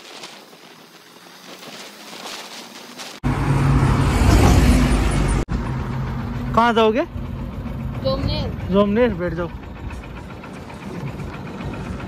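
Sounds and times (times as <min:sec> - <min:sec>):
wind and road noise: 0:00.0 - 0:12.0
motorcycle engine idling: 0:05.5 - 0:12.0.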